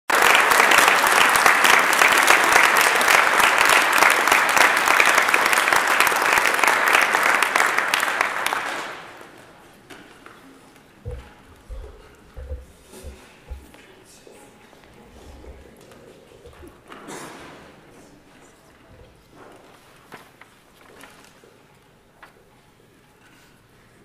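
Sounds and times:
audience applause: 0.1s - 9.6s.

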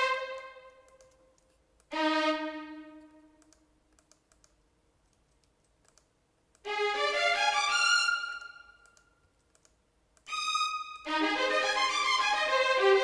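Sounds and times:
sampled violin arpeggio: 0.0s - 0.9s, 1.9s - 3.3s, 6.7s - 8.8s, 10.3s - 13.0s
keyboard and mouse clicks: 0.3s - 1.9s, 3.0s - 6.7s, 8.8s - 10.3s.

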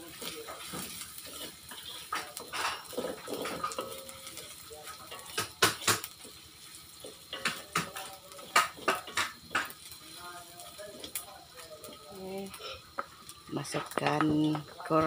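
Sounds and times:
wooden spatula scraping a wok: 0.0s - 7.6s.

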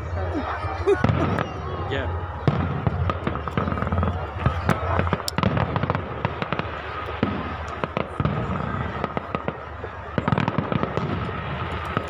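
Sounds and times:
fireworks bursting with bangs and crackles: 0.9s - 12.0s.

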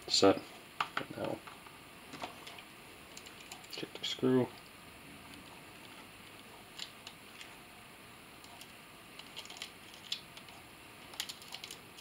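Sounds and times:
small parts clicking and tapping: 0.8s - 3.9s, 8.4s - 12.0s.

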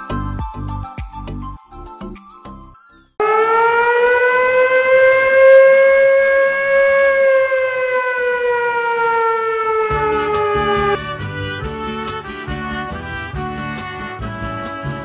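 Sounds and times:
air-raid siren wailing: 3.2s - 15.0s.

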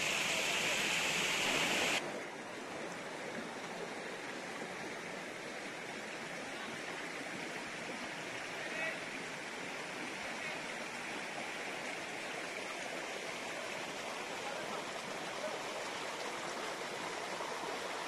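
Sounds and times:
water flowing over stones: 0.0s - 18.0s.

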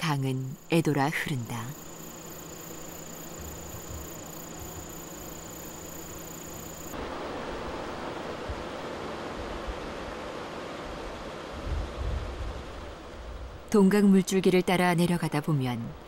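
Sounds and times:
high-pitched insect drone: 0.0s - 7.0s.

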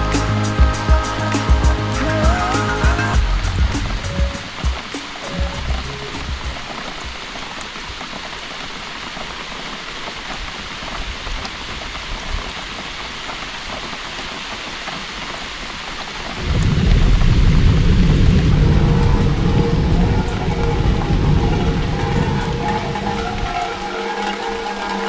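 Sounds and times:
steady rain hiss: 0.0s - 25.0s
loud low rumble: 16.4s - 23.6s.

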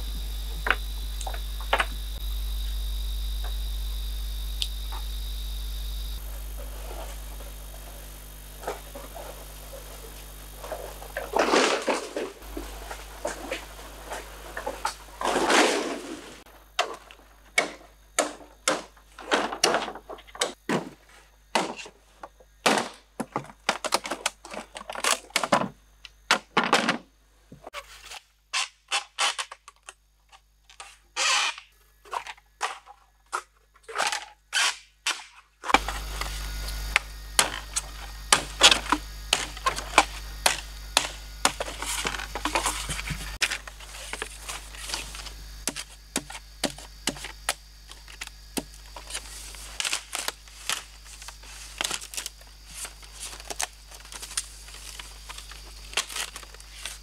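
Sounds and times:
bamboo poles knocking: 16.8s - 21.0s, 37.4s - 43.4s, 45.6s - 47.6s.

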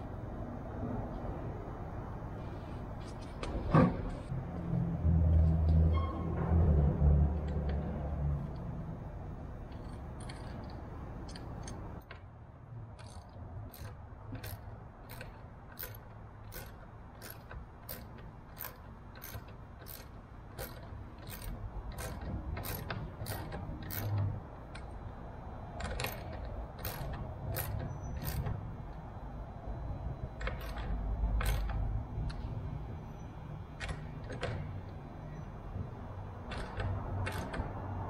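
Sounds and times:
ratchet wrench clicking: 9.7s - 12.3s, 13.0s - 24.9s, 25.8s - 28.6s, 30.4s - 32.4s, 36.5s - 37.8s.

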